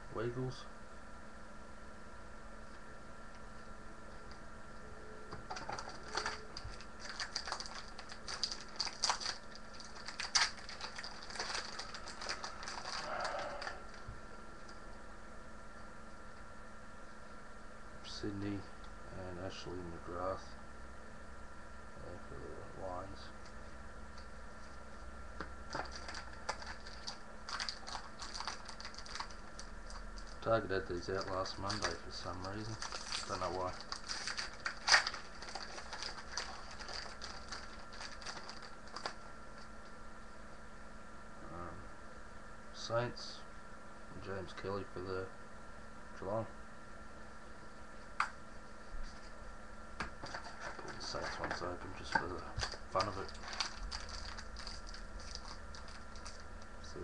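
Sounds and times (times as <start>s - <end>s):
wrapper being torn and crinkled: 5.6s - 14.0s, 25.7s - 30.5s, 31.1s - 39.7s, 50.2s - 56.7s.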